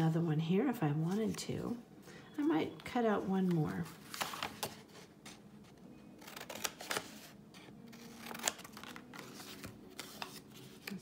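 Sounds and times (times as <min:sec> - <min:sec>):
paper sheet rustling: 0:03.4 - 0:05.4, 0:07.9 - 0:11.0
scissors snipping paper: 0:06.2 - 0:07.3, 0:08.0 - 0:11.0.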